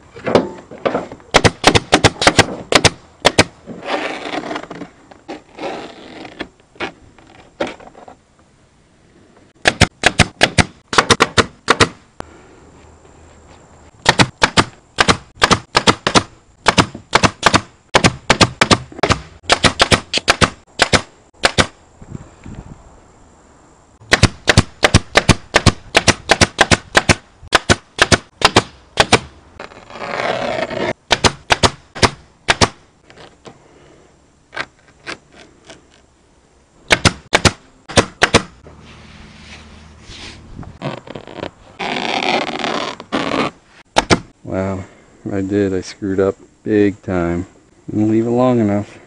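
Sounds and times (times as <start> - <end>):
staple gun shots: 9.6 - 12.0, 14.0 - 21.8, 24.1 - 29.3, 31.1 - 32.8, 36.9 - 38.5.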